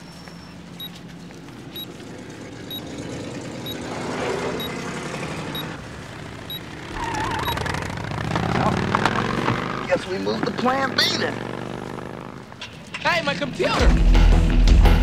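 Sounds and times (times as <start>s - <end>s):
vehicle driving past: 1.6s - 12.5s.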